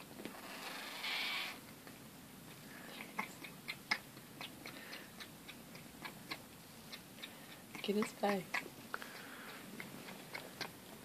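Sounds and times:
cat tongue clicks and smacks: 0:03.0 - 0:10.8.

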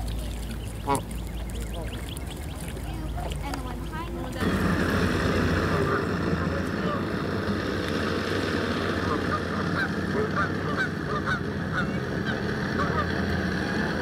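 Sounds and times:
outboard motor running: 0:00.0 - 0:14.0
geese honking: 0:00.2 - 0:07.3, 0:08.6 - 0:14.0.

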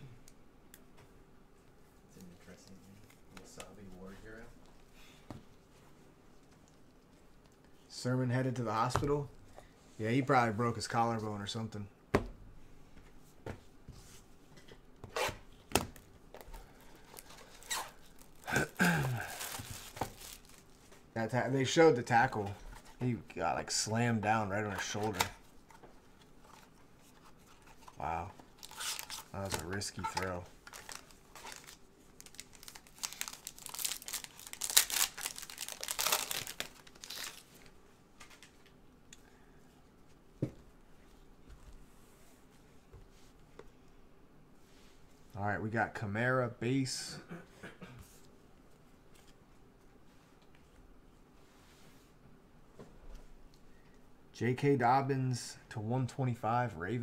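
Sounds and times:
plastic wrapping tearing and crackling: 0:17.0 - 0:20.8, 0:28.5 - 0:37.7.

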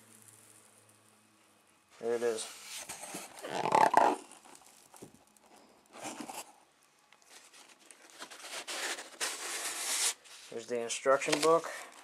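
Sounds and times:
cardboard crinkling: 0:02.3 - 0:06.5, 0:07.3 - 0:12.0
paper packaging rustling: 0:02.3 - 0:06.5, 0:07.3 - 0:12.0.

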